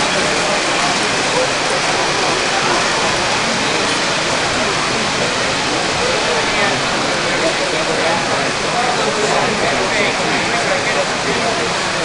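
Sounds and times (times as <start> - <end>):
crowd hubbub: 0.0 - 12.0.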